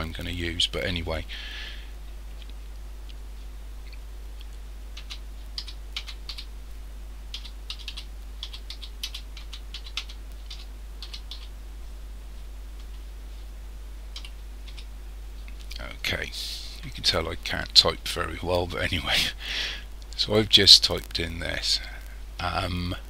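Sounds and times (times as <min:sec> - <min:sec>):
steady low hum: 0:00.0 - 0:23.0
computer keyboard typing: 0:05.0 - 0:06.5, 0:07.3 - 0:11.5, 0:14.1 - 0:14.9.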